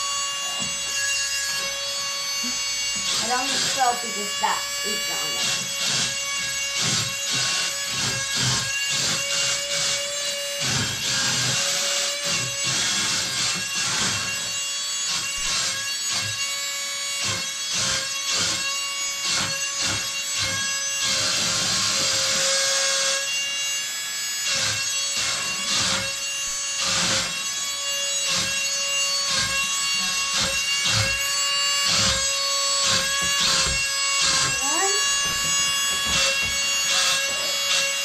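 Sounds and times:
motor and gear noise: 29.3s - 38.0s.

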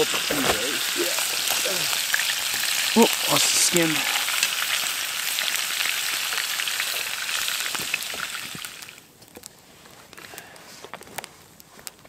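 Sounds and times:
fish sizzling in a skillet: 0.0s - 9.1s.

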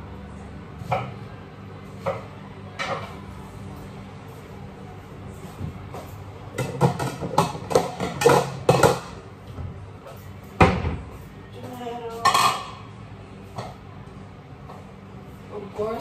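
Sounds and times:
dishes and utensils clattering: 2.0s - 3.3s, 5.9s - 9.2s, 12.0s - 12.9s.

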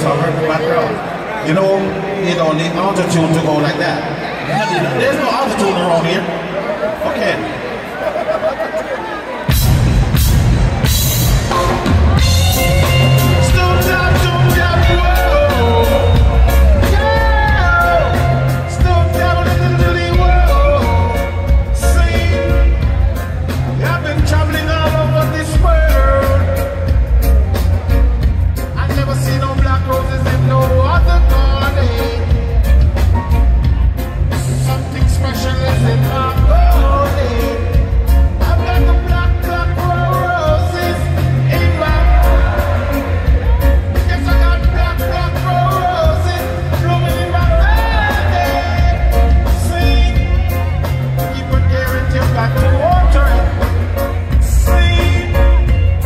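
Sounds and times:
live reggae band: 0.0s - 56.0s
steady drumbeat: 9.4s - 56.0s
heavy bass line: 9.5s - 56.0s
man singing: 12.5s - 27.2s, 28.7s - 33.0s, 34.3s - 56.0s.

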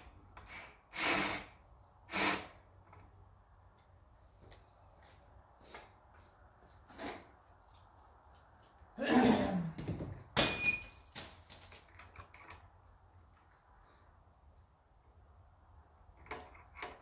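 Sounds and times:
metallic clank ringing: 10.4s - 11.1s.

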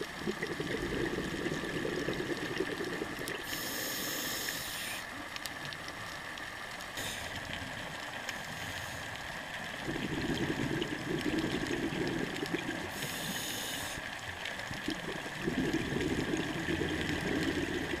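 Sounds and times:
exhaled bubbles gurgling: 0.0s - 5.9s, 9.4s - 18.0s
regulator inhale hiss: 3.4s - 5.1s, 7.0s - 7.6s, 8.4s - 9.3s, 12.9s - 14.2s.

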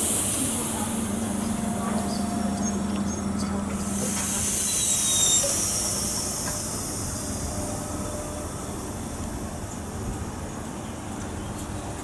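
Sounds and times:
train air hiss: 0.0s - 2.6s, 3.8s - 10.3s
train low rumble: 0.0s - 12.0s.

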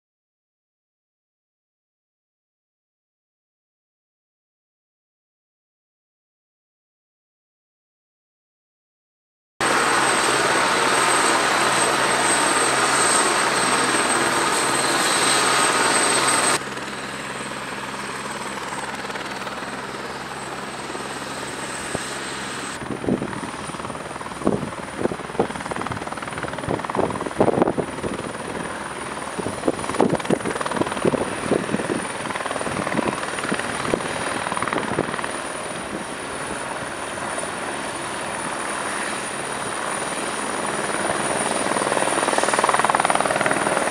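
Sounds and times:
helicopter rotor and turbine whine: 9.6s - 43.9s.

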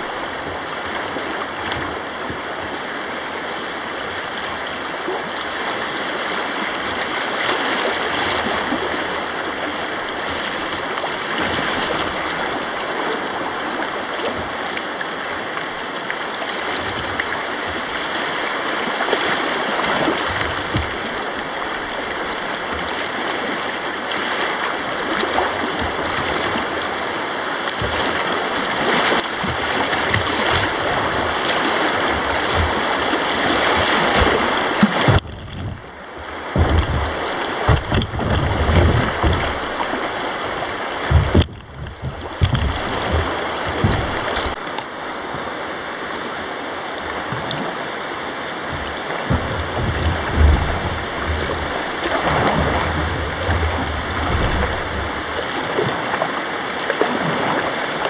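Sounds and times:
rapids rushing and splashing: 0.0s - 58.0s
faint knocks: 35.0s - 44.6s, 48.7s - 55.4s.

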